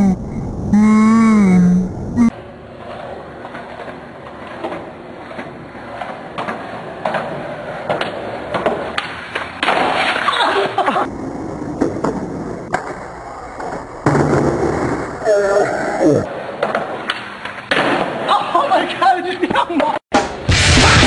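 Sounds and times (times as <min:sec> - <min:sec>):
skateboard wheels rolling on concrete: 0:02.3 - 0:18.8.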